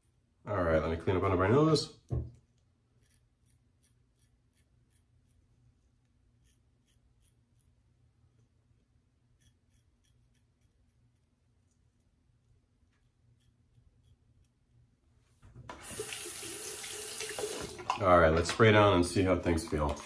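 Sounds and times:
razor scraping stubble: 2.8s - 11.4s.

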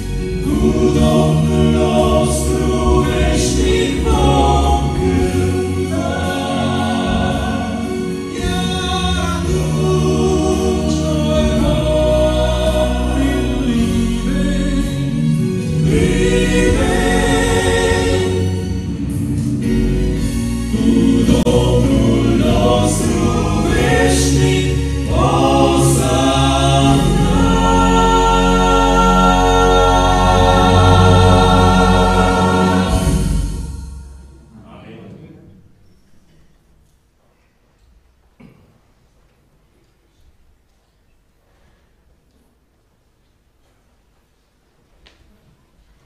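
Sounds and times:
male quartet singing gospel: 0.0s - 34.6s.

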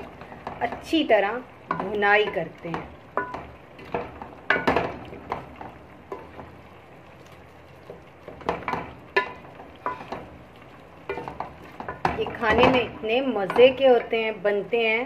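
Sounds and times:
faint sizzle of frying: 0.0s - 15.0s
wooden spoon knocking metal pot: 1.6s - 6.4s, 8.3s - 10.2s, 11.1s - 14.2s.

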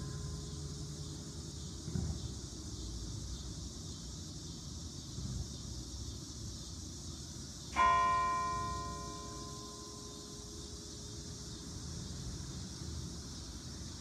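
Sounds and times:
low background hiss: 0.0s - 14.0s
church bell toll: 7.8s - 10.9s.

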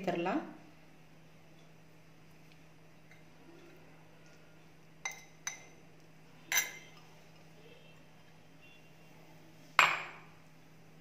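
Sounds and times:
spoon clinking against glass bowl: 5.0s - 5.8s, 6.5s - 7.1s.

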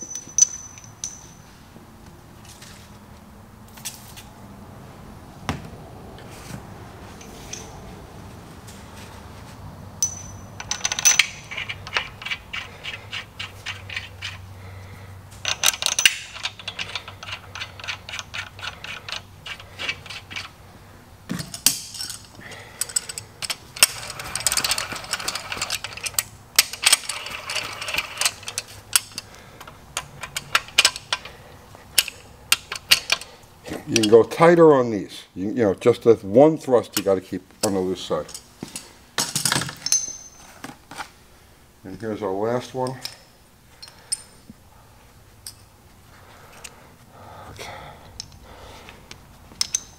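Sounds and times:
metal clinks of tools: 0.0s - 1.5s, 10.0s - 13.0s, 15.4s - 20.4s, 21.3s - 29.3s, 38.3s - 40.6s, 45.4s - 45.7s, 49.6s - 49.9s.

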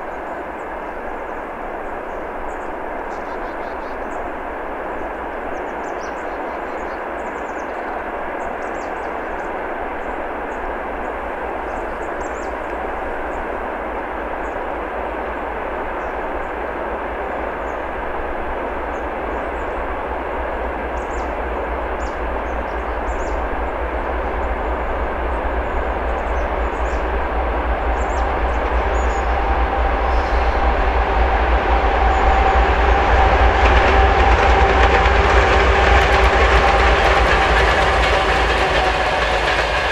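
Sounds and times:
diesel locomotive engine rumble: 0.0s - 39.9s
locomotive whine: 9.8s - 39.9s.

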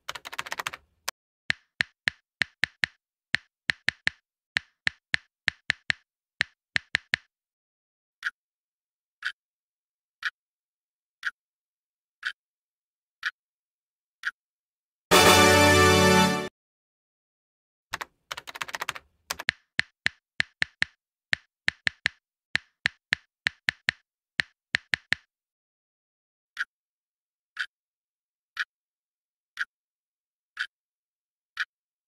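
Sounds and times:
clock ticking: 0.0s - 0.9s, 1.5s - 7.3s, 9.2s - 9.4s, 11.2s - 11.4s, 12.2s - 12.4s, 17.9s - 25.3s
keyboard typing clicks: 0.0s - 7.3s, 17.9s - 25.2s.

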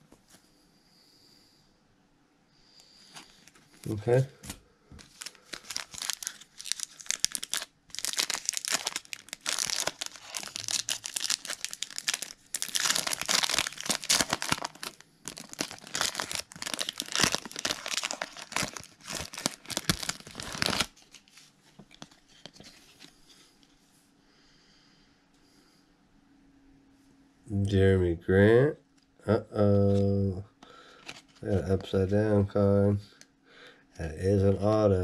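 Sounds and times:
faint handling of cards: 3.0s - 24.0s, 29.0s - 32.5s
foil wrapper tearing and crinkling: 5.0s - 22.6s.

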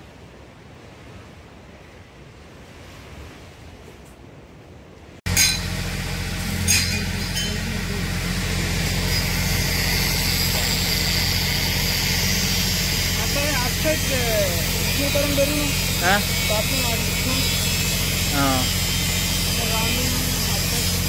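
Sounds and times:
breezy outdoor ambience: 0.0s - 21.0s
small engine running: 5.3s - 21.0s.

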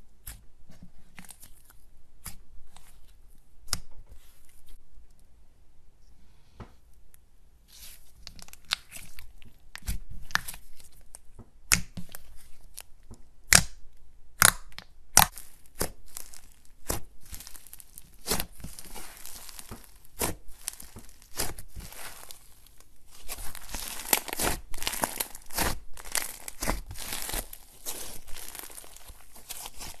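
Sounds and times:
slime squished and popping: 13.5s - 13.8s, 14.4s - 30.0s.

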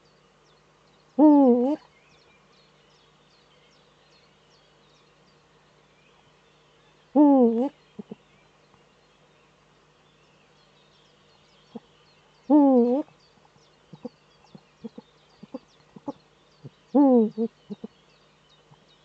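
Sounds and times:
owl deep hoot: 1.2s - 1.9s, 7.2s - 8.2s, 12.5s - 13.1s, 13.9s - 17.9s.

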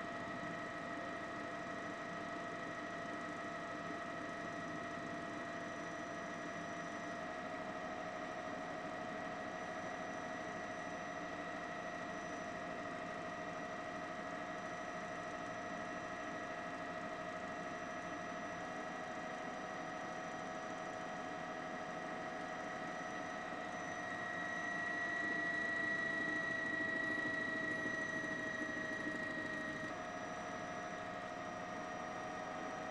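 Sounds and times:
helicopter turbine whining: 23.2s - 29.9s.

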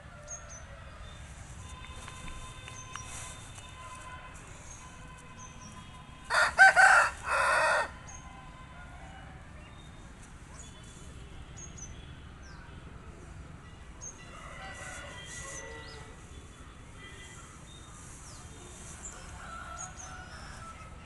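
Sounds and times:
rooster crowing: 6.3s - 8.0s, 14.2s - 16.2s, 19.0s - 21.0s.

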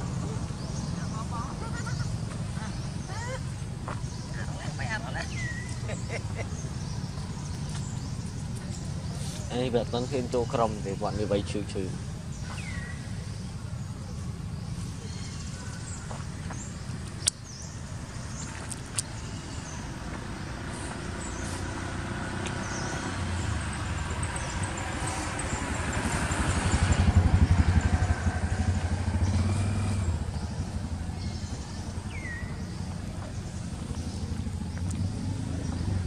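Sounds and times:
vehicle engine passing by: 19.2s - 36.0s.

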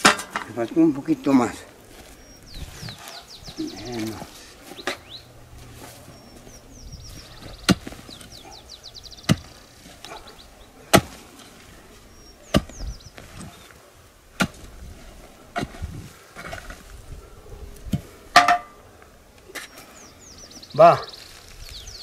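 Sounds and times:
small birds twittering: 0.5s - 22.0s
pick striking stony soil: 2.6s - 8.4s, 9.2s - 10.2s, 10.9s - 13.7s, 14.3s - 16.9s.

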